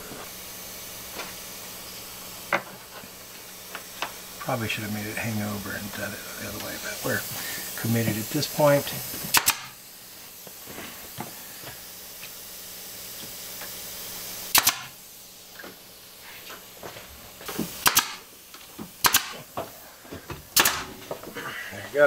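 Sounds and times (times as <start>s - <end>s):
nail gun firing into wood: 9.2s - 9.8s, 14.5s - 15.0s, 17.5s - 18.3s, 18.9s - 19.5s, 20.5s - 21.0s.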